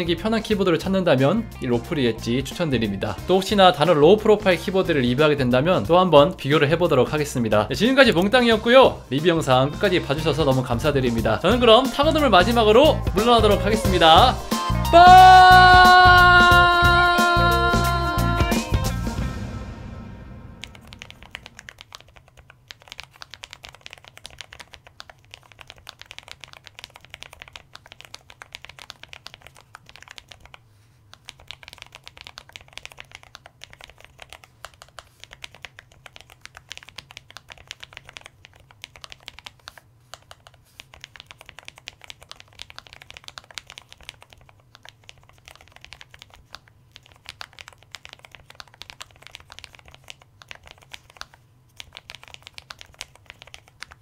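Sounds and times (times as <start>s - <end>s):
mechanical keyboard typing: 20.6s - 54.0s.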